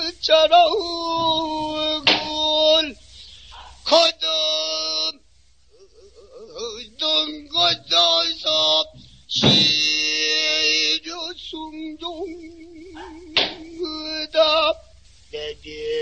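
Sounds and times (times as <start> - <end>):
solo voice singing: 0.0 - 3.0, 3.8 - 16.0
barrel drum strokes: 7.6 - 10.1.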